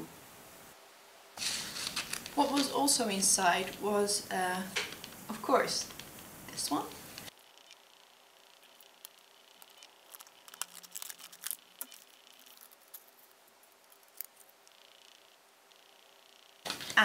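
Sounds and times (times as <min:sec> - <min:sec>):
plastic blister pack crinkling: 0:01.4 - 0:03.0, 0:05.8 - 0:06.3, 0:07.0 - 0:15.3, 0:16.6 - 0:17.0.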